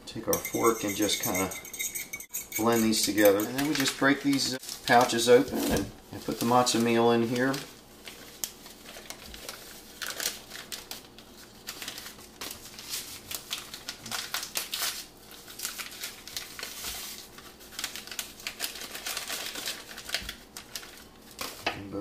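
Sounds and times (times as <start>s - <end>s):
paper pouches crinkling: 3.5s - 5.5s, 6.1s - 21.7s.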